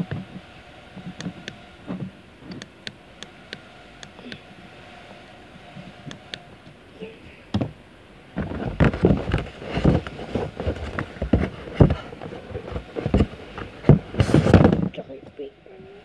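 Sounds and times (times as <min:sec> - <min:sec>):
clothing rustling and handling noise: 0:04.9 - 0:15.0.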